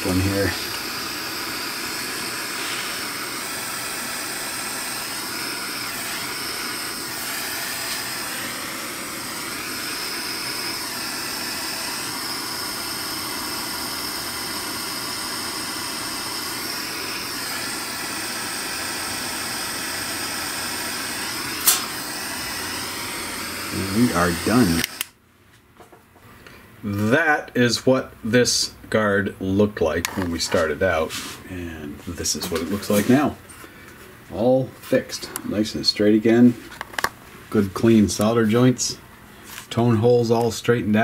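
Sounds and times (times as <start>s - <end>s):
gas torch hissing: 0.0s - 25.2s.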